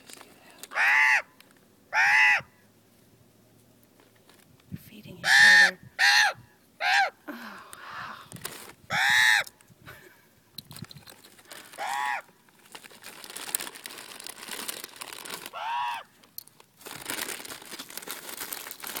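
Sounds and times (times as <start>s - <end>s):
raven cawing: 0.7s - 2.6s, 5.2s - 8.3s, 8.9s - 9.6s, 11.7s - 12.3s, 15.5s - 16.1s.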